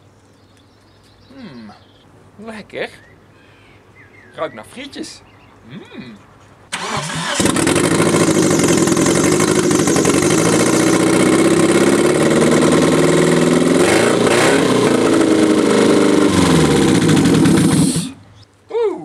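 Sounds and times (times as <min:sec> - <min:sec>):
car engine starting and running: 0:06.7 - 0:18.2.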